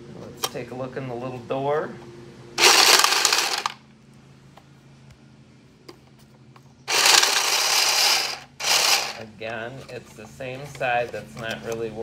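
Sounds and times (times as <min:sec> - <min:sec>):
card shuffler whirring and rattling: 0:02.6 - 0:03.8, 0:06.9 - 0:09.3.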